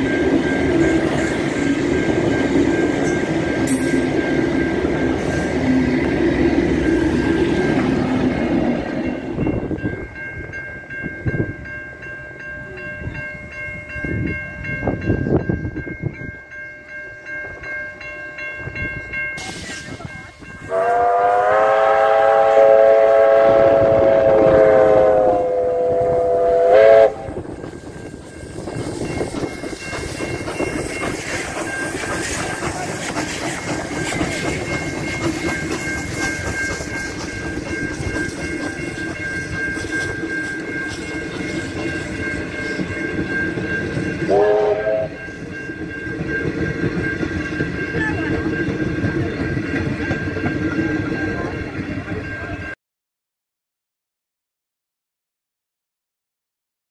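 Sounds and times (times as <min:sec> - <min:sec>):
train wheels rumbling on rails: 0:00.0 - 0:11.7, 0:18.6 - 0:52.8
steam whistle: 0:20.7 - 0:27.4, 0:44.3 - 0:45.2.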